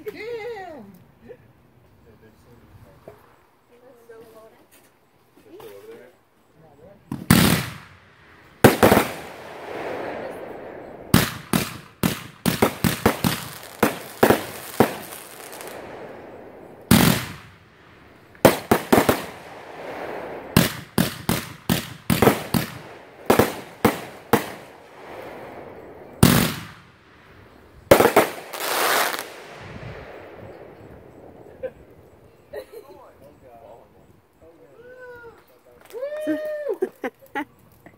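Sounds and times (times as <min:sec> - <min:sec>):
fireworks crackle and hiss: 0:01.8 - 0:37.9
fireworks bangs: 0:07.1 - 0:32.6.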